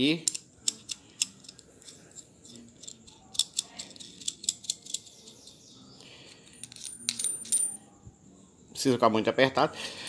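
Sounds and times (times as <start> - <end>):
metal nut clinking on rod: 0.2 - 5.6, 6.5 - 7.8
metal rubbing: 0.6 - 7.9.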